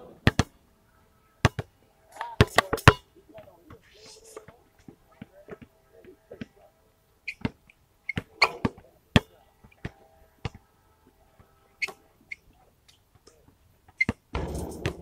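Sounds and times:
basketball bouncing: 0:00.2 - 0:00.5, 0:01.4 - 0:01.7, 0:14.0 - 0:15.0
shoe squeaks: 0:07.2 - 0:08.7, 0:11.8 - 0:12.5, 0:14.0 - 0:14.2.

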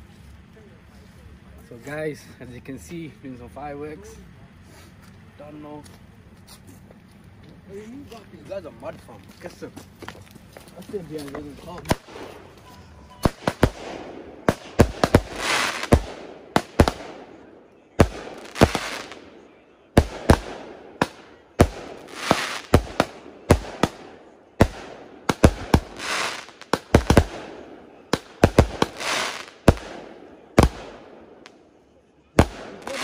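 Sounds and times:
fireworks bangs and crackle: 0:08.8 - 0:31.6, 0:32.3 - 0:33.0.

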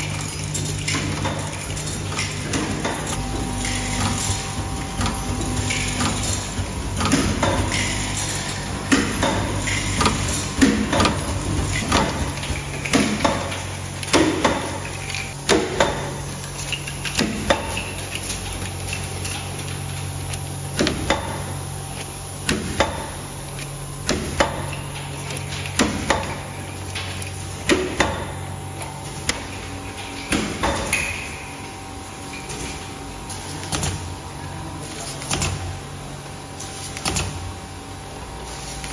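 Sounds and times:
machine clacks and knocks: 0:00.0 - 0:16.2
packaging machinery hum: 0:00.0 - 0:38.9.

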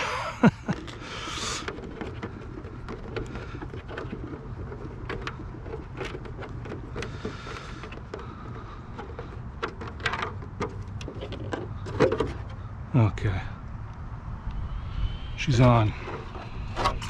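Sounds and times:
wind rumble on microphone: 0:13.5 - 0:17.0.

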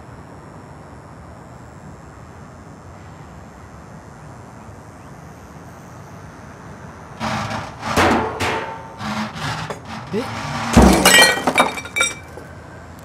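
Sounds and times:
sharp knocks and clattering bangs: 0:07.2 - 0:12.4.

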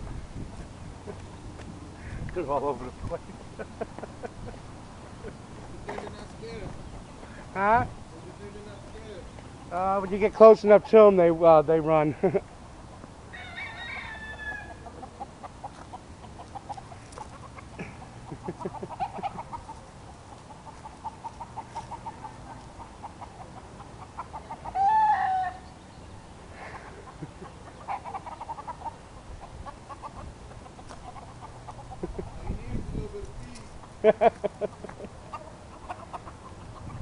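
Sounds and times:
hens and roosters clucking: 0:00.0 - 0:37.0
chicken squawk: 0:13.3 - 0:25.7, 0:26.7 - 0:32.6, 0:34.7 - 0:37.0.

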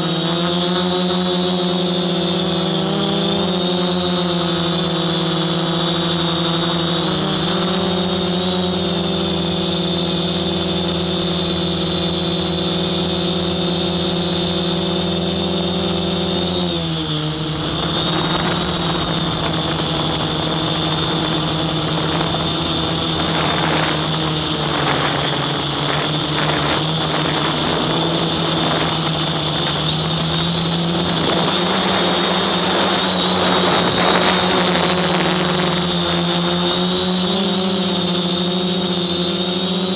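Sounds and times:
drone propellers whining: 0:00.0 - 0:39.9
rushing noise: 0:16.0 - 0:36.5.

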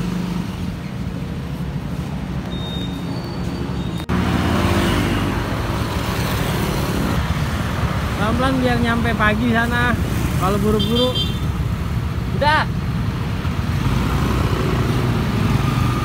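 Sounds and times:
motorbikes revving: 0:00.0 - 0:16.0
faint high beep: 0:02.4 - 0:04.0.

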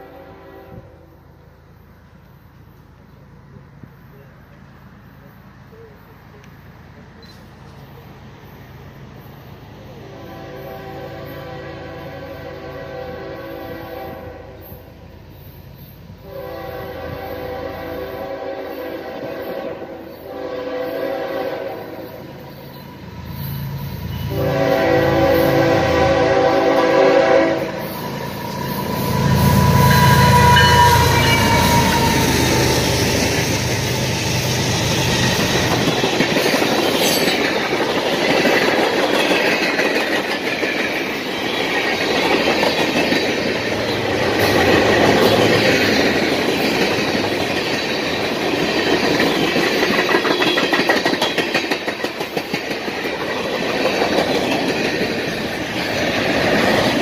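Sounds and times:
locomotive horn blasts: 0:00.0 - 0:01.2, 0:10.0 - 0:14.8, 0:16.2 - 0:22.2, 0:24.2 - 0:28.0, 0:28.8 - 0:33.1
diesel locomotives rumbling: 0:00.0 - 0:57.0
train wheel noise: 0:00.0 - 0:57.0.

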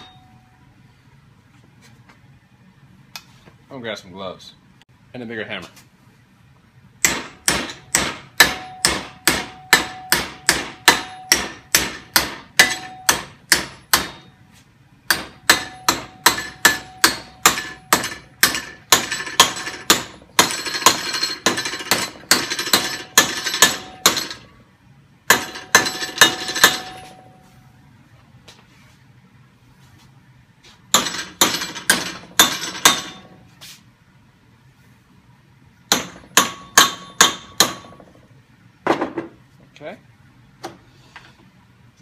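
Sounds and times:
hammer striking metal: 0:00.0 - 0:00.3, 0:07.0 - 0:14.4, 0:15.1 - 0:24.5, 0:25.3 - 0:27.3, 0:30.9 - 0:33.4, 0:35.9 - 0:38.0.

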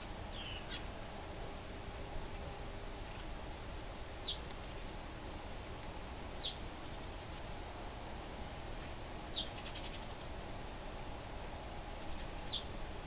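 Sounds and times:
sparrow chirps: 0:00.3 - 0:00.9, 0:04.2 - 0:04.4, 0:06.4 - 0:07.2, 0:09.3 - 0:10.2, 0:12.1 - 0:12.7.

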